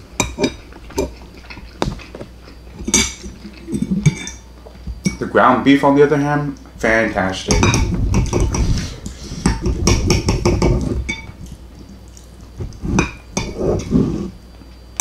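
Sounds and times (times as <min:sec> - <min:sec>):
knife and fork scraping bowl: 0:12.6 - 0:14.3.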